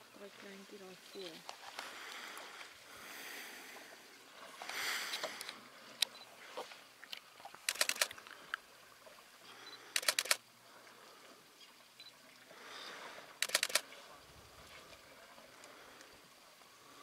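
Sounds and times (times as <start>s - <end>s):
camera shutter clicks: 7.7s - 8.2s, 10.0s - 10.4s, 13.4s - 13.9s.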